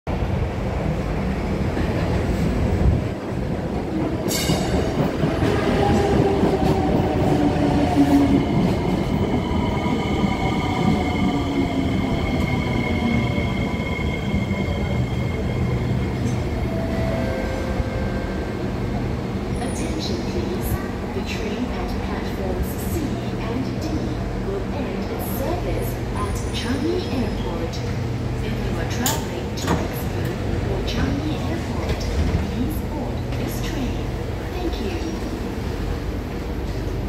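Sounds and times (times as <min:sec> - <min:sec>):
wheels rumbling on rail: 0:00.1 - 0:37.0.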